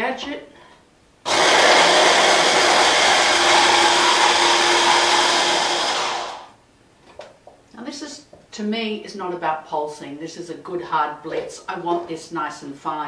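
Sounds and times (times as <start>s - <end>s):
stick blender running: 1.3s - 6.6s.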